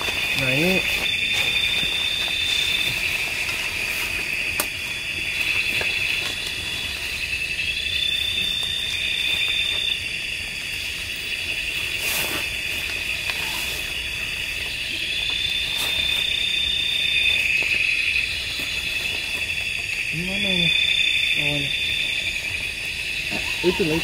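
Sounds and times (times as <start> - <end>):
insects chirring: 0.0 - 24.0
rising insect note: 0.0 - 24.0.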